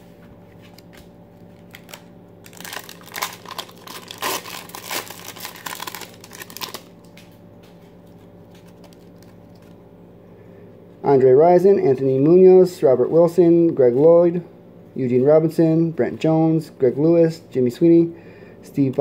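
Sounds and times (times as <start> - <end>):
foil wrapper crinkling: 0.7 - 9.8.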